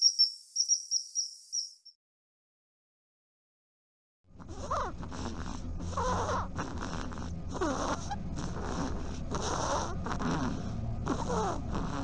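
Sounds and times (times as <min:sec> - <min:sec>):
dormouse raspy squeaks: 0:04.4 - 0:12.0.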